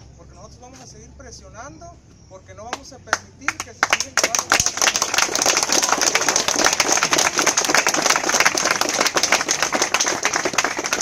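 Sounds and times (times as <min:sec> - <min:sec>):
crowd applauding: 0:03.5 - 0:11.0.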